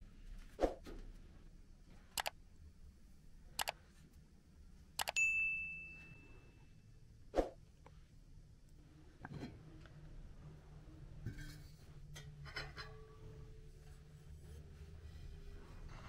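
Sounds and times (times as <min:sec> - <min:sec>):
bell ding: 0:05.1 - 0:06.6.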